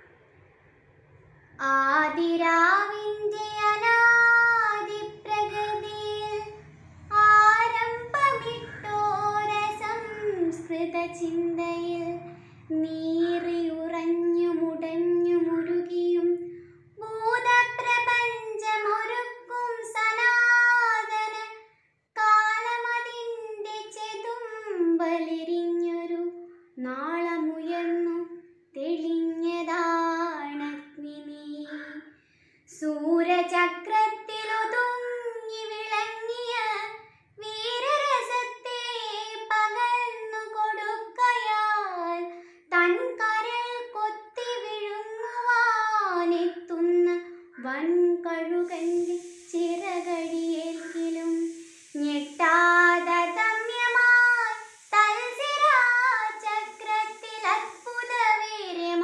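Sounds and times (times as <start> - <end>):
girl chanting verse solo: 48.6 - 59.0.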